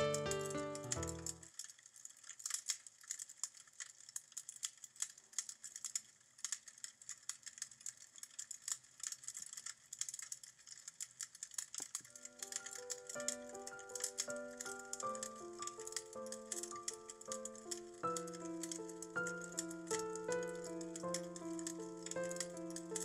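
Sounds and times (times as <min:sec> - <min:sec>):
music with picked notes: 0:00.0 - 0:01.4
wood fire crackling: 0:00.0 - 0:23.0.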